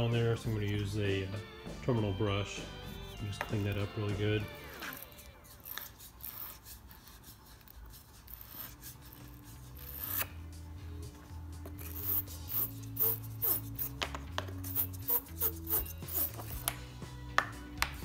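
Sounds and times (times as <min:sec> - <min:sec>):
brush scraping battery post: 0:11.7 - 0:16.7.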